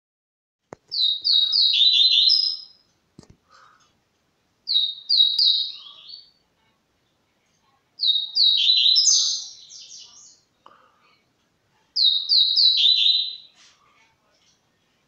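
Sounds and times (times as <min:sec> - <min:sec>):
songbird singing trills: 0:00.9 - 0:02.9, 0:04.7 - 0:06.4, 0:08.0 - 0:10.5, 0:12.0 - 0:13.6.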